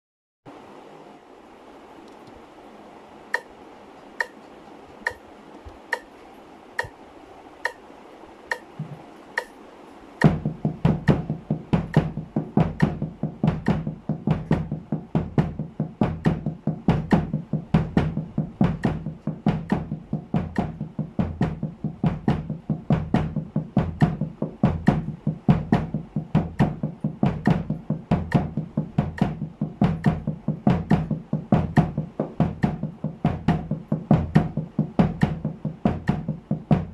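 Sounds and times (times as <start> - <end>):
metronome clicking: 3.3 - 3.6, 4.2 - 7.0, 7.6 - 7.9, 8.5 - 9.6, 10.2 - 15.6
sticks on muffled snare: 3.4 - 3.6, 4.2 - 7.0, 7.6 - 7.9, 8.5 - 36.9
bass drum kicks: 10.2 - 36.9.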